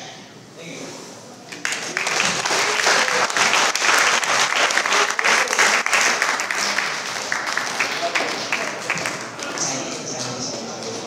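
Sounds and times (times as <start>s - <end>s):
crowd applauding: 1.5s - 10.3s.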